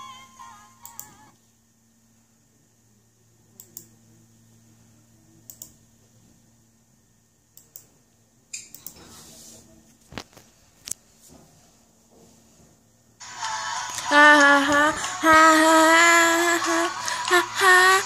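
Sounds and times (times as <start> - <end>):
computer mouse clicks: 0.8 - 1.2, 3.6 - 3.9, 5.4 - 5.8, 7.6 - 7.9, 8.6 - 9.1.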